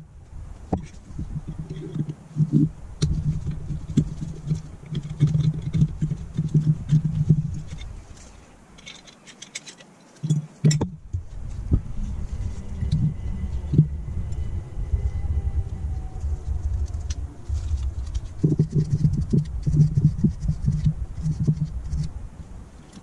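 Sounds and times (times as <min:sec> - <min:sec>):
small metal parts clinking: 0:07.6 - 0:10.9.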